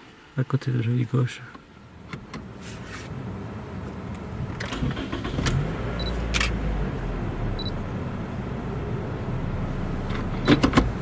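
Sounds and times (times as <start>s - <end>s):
vehicle engine humming: 1.6s - 11.0s
high beeps: 6.0s - 6.2s, 7.6s - 7.8s.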